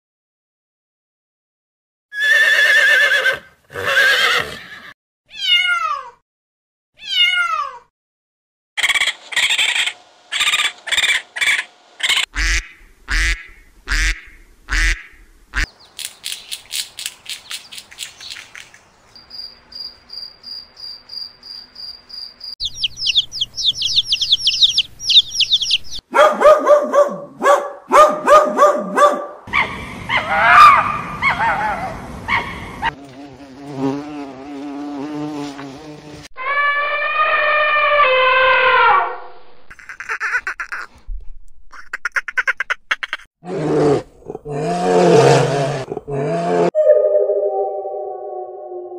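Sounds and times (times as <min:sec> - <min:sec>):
horse whinnying: 0:02.1 - 0:05.7
cat meowing: 0:05.3 - 0:06.2, 0:07.0 - 0:07.9
duck quacking: 0:08.8 - 0:15.7, 0:41.8 - 0:43.3
cricket chirping: 0:17.3 - 0:25.9
chick peeping: 0:22.6 - 0:26.0
dog barking: 0:26.1 - 0:32.9.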